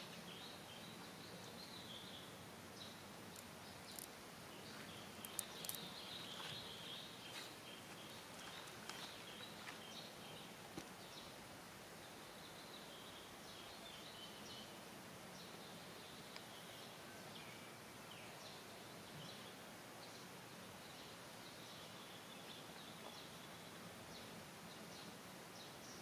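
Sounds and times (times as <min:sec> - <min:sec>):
sharp clicks: 0:05.2 - 0:05.9.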